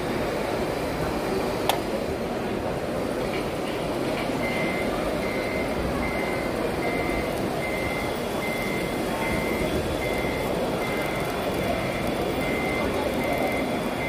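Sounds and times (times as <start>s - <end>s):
reversing beeper: 4.4s - 14.0s.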